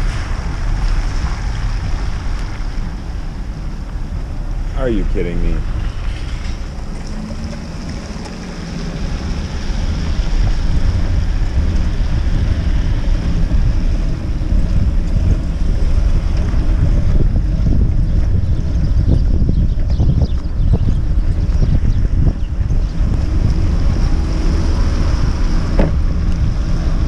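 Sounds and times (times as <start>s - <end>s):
tyres hissing on wet pavement: 0.0s - 13.6s
wind rumbling on microphone: 0.0s - 27.0s.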